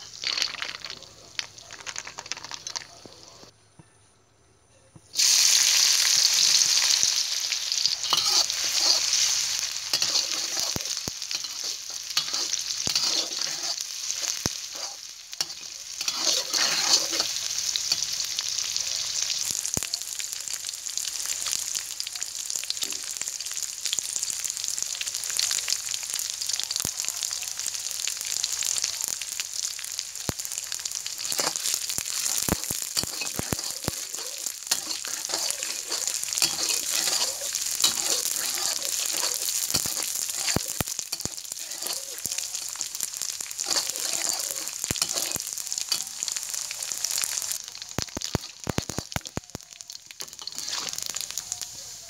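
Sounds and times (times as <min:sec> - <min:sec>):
fish deep-frying in hot oil: 0:00.0 - 0:03.5, 0:05.2 - 0:52.0
spatula clicking and scraping: 0:08.0 - 0:18.0, 0:31.2 - 0:42.9, 0:43.6 - 0:46.1, 0:48.1 - 0:49.3, 0:50.2 - 0:51.1.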